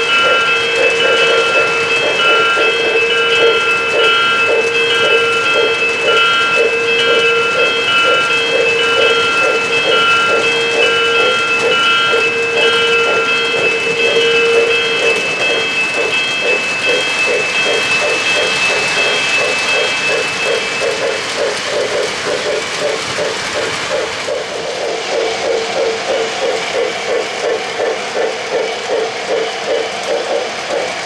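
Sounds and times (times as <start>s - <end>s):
high electronic ringing dashes: 0.0s - 21.3s
model train pulsing hum: 0.0s - 31.0s.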